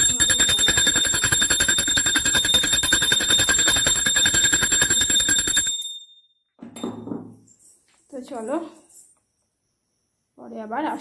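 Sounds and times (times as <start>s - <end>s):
bell rung rapidly: 0.0s - 6.2s.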